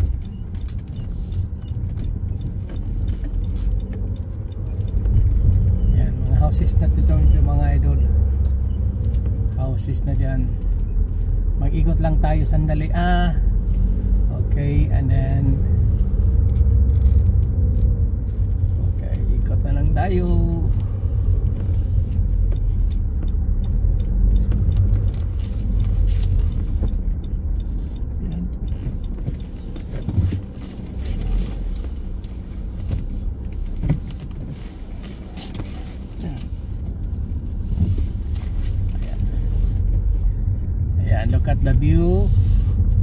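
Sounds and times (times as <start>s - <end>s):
car engine and tyre rumble: 0.0s - 43.0s.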